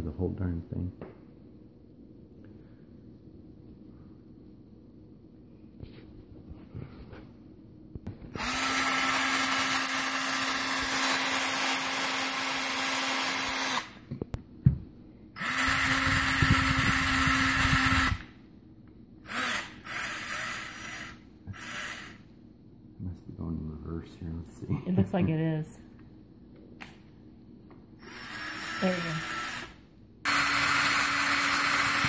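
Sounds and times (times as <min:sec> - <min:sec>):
cordless drill running: 0:08.3 - 0:14.0, 0:15.4 - 0:18.3, 0:19.2 - 0:22.3, 0:28.0 - 0:32.0.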